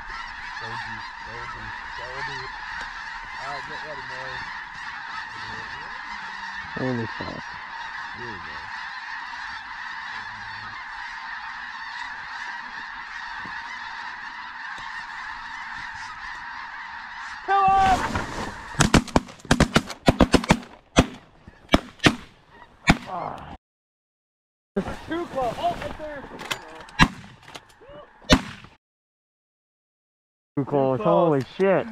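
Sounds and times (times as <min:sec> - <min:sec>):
geese honking: 0:00.0 - 0:23.4, 0:24.8 - 0:28.4
shotgun blasts: 0:27.0 - 0:27.4, 0:28.3 - 0:28.7.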